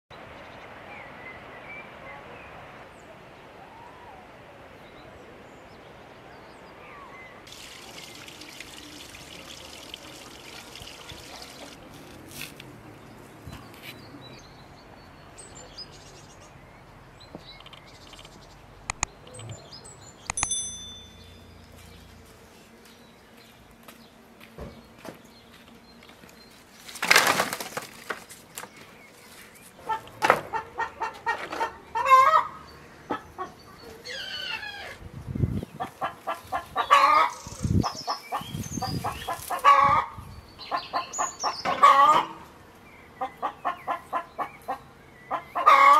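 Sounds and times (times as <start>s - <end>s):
flowing water: 7.5s - 11.9s
small birds chirping: 12.9s - 27.0s, 28.3s - 45.9s
sharp clicks: 17.6s - 19.6s, 20.2s - 20.6s
short high chime: 20.4s - 21.5s.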